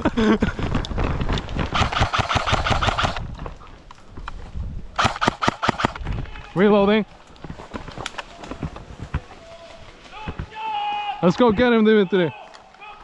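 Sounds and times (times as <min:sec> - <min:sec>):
airsoft gun firing full auto: 0:01.7 - 0:03.2, 0:05.0 - 0:06.0.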